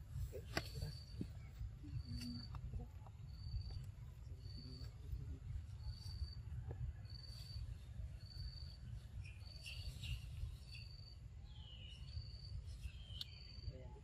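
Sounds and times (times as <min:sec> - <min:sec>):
cricket chirping: 0:00.0 - 0:14.0
bird calls: 0:08.3 - 0:13.7.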